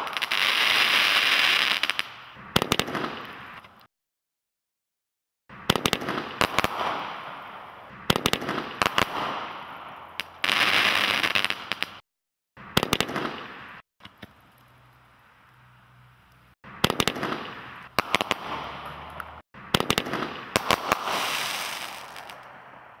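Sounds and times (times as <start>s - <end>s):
fireworks bangs: 0.0s - 3.7s, 5.5s - 12.0s, 12.6s - 13.8s, 16.7s - 23.0s.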